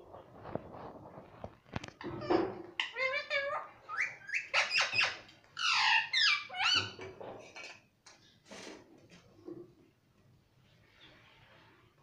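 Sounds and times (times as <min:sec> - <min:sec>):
parakeet chattering and squawking: 0:01.9 - 0:07.0.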